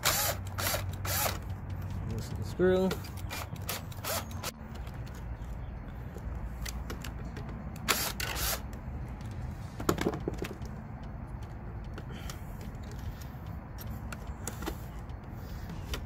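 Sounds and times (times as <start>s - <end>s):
cordless drill running: 0.0s - 1.4s, 7.9s - 8.6s.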